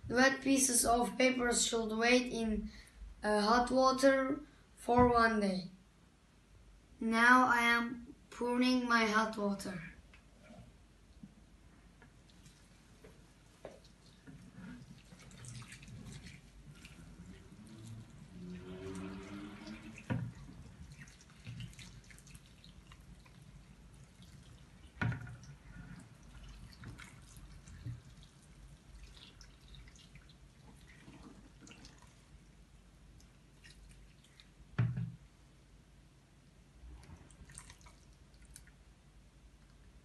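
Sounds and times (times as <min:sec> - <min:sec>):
water trickling into a bowl: 0:12.2 - 0:32.5, 0:33.1 - 0:34.6, 0:37.0 - 0:38.8.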